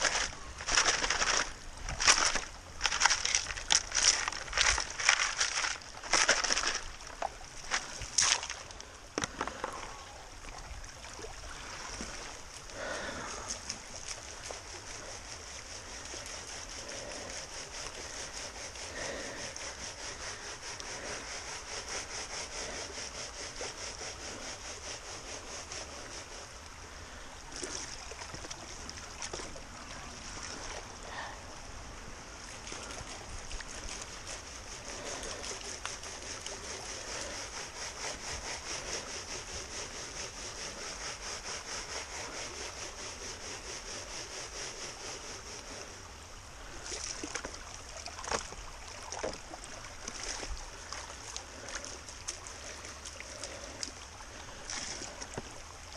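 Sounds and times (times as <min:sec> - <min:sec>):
gravel grinding against a pan: 0:00.0 - 0:06.9, 0:33.8 - 0:45.8
gravel rattling in a sieve: 0:00.0 - 0:08.6
creek running: 0:00.0 - 0:55.9.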